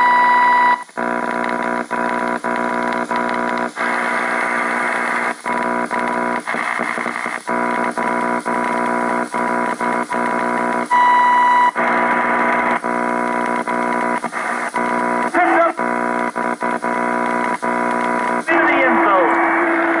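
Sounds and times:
pure beep: 0.0 - 0.9, 10.9 - 11.8
radio buzzing drone: 0.0 - 20.0.

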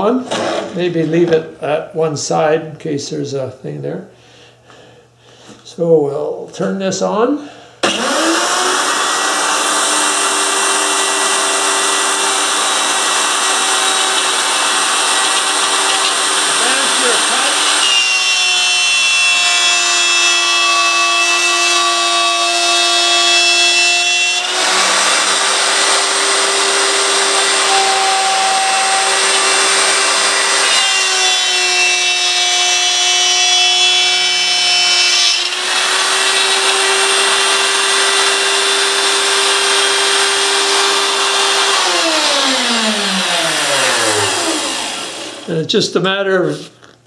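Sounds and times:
router motor spinning down: 7.8 - 45.5
electric router cutting: 7.8 - 45.6.

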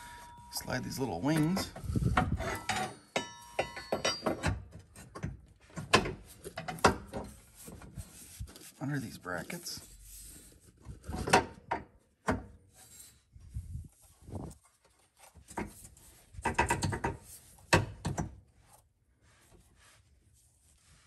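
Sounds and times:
metal knocks and clinks: 0.0 - 4.7.

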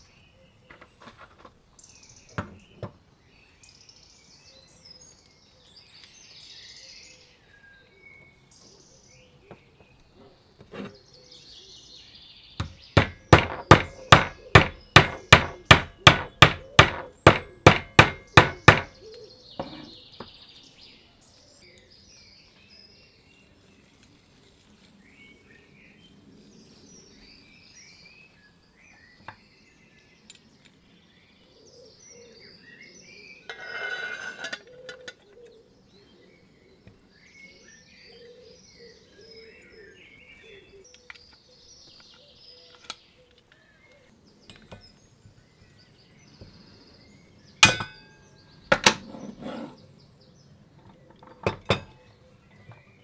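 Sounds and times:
bird chirps: 0.0 - 23.7, 25.0 - 53.0
hammer striking steel pin: 12.6 - 18.9, 47.6 - 48.1.

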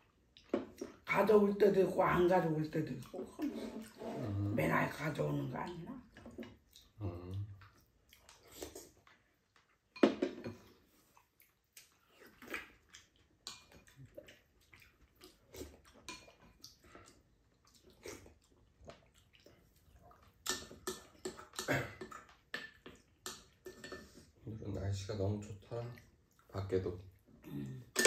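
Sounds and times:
chewing: 0.0 - 1.1, 5.6 - 24.4, 25.5 - 28.0
slurping soup: 3.1 - 4.6.

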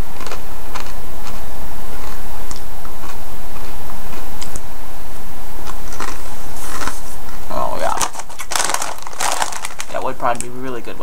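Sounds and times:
chewing crisp chips: 0.0 - 4.6, 5.6 - 7.0, 7.8 - 10.5
low background hum: 0.0 - 11.0.

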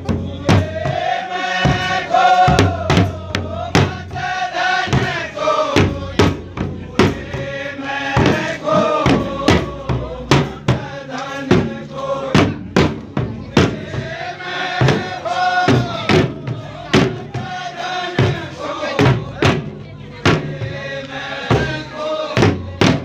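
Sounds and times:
dhol drum struck with a stick: 0.0 - 14.2, 14.8 - 23.0
men singing in chorus: 0.0 - 23.0.

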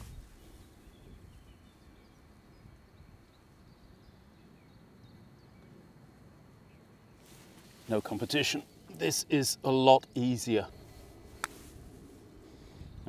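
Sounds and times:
faint bird chirps: 0.0 - 5.9.

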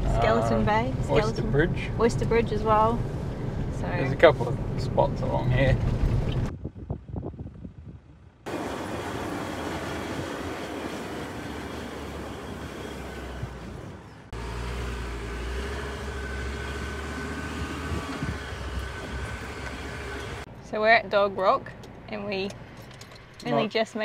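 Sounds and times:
heavy low rumble: 0.0 - 10.6
vehicle engine and road noise: 0.0 - 24.0.

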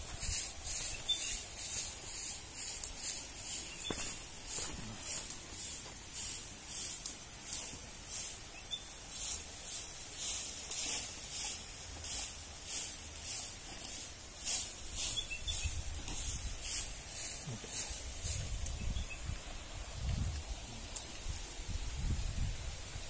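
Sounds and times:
footsteps crunching on gravel: 3.0 - 6.2.

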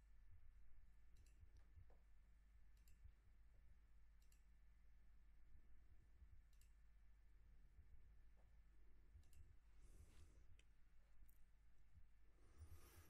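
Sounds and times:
low steady hum: 0.0 - 13.0
faint computer mouse clicks: 1.2 - 1.7, 2.8 - 3.1, 4.2 - 4.5, 6.5 - 6.8.

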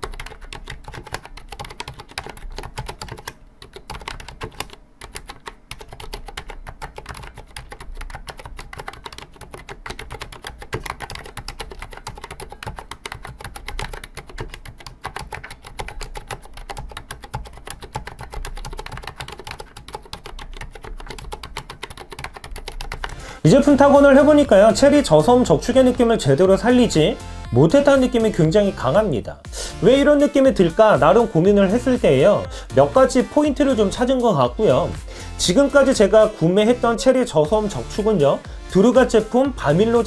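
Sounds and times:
typing on mechanical keyboard: 0.0 - 23.2.

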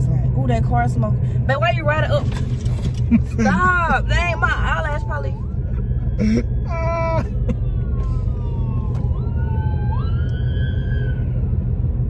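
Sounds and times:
road rumble: 0.0 - 12.0
siren wailing: 4.4 - 11.8.

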